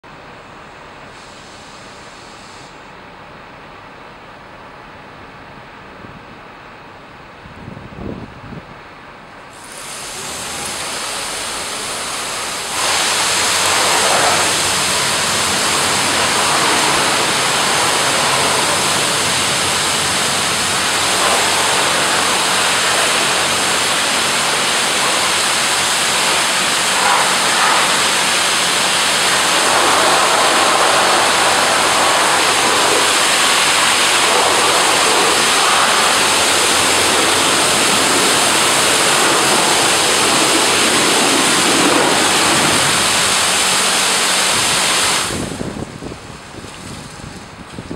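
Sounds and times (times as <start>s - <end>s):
high-pressure water jets hissing: 1.1s - 2.8s, 9.5s - 45.8s.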